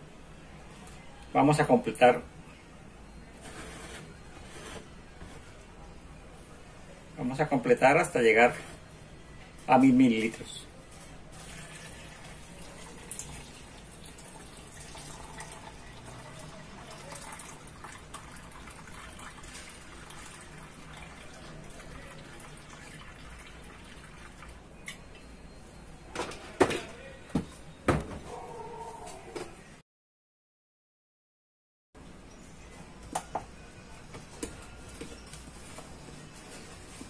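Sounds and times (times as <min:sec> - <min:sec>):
water pouring into plastic jug: 0:11.3 - 0:24.6.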